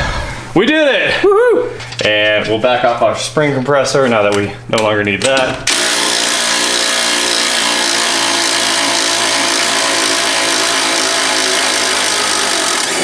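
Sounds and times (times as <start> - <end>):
impact wrench hammering: 5.2 - 13.0.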